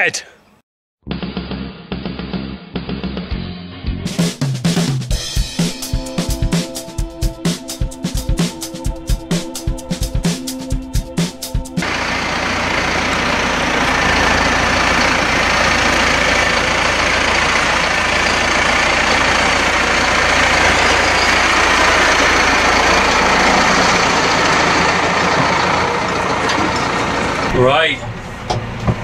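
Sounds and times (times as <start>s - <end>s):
tractor diesel engine running: 11.8s - 29.0s.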